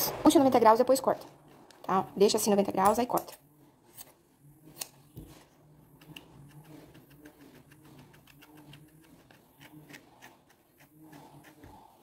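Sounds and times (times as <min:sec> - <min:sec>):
brush combing wool: 0:06.1 - 0:12.0.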